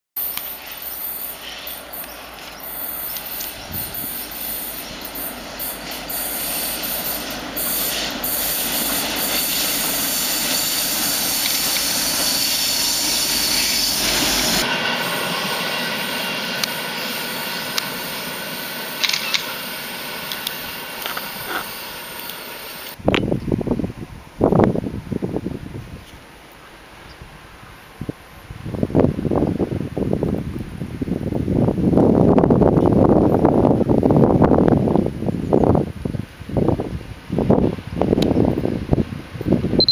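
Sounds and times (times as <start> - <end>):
diesel locomotive engine running: 0.2 - 23.0
train wheels on rails: 0.2 - 23.0.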